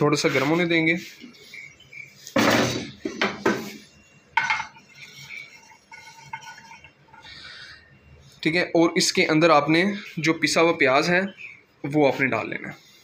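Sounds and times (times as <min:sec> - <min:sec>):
spatula scraping frying pan: 0:00.2 - 0:07.6.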